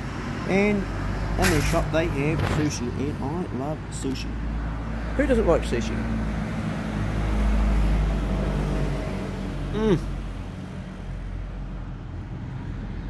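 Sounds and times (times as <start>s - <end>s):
vehicle engine rumbling: 0.0s - 7.5s.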